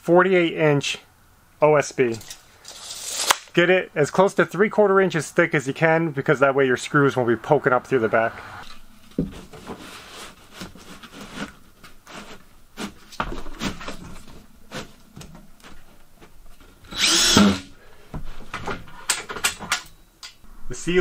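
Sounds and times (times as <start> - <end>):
power drill driving a screw: 16.9 - 17.7.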